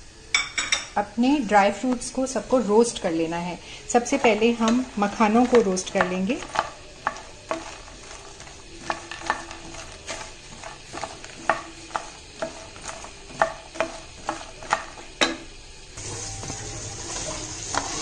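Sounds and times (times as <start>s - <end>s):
faint sizzle: 0.0s - 18.0s
wooden spatula scraping a pan: 3.8s - 15.3s, 16.0s - 18.0s.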